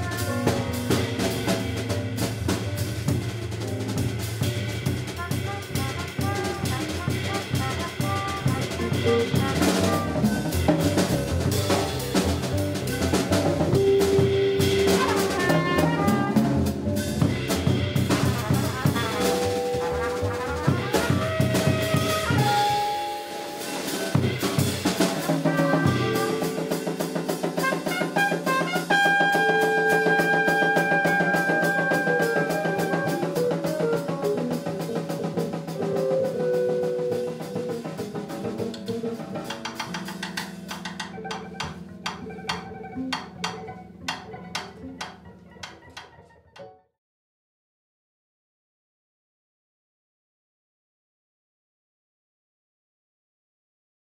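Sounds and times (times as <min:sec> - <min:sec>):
upright bass: 0:00.0 - 0:22.8
trumpet: 0:00.0 - 0:46.6
drum kit: 0:00.0 - 0:46.7.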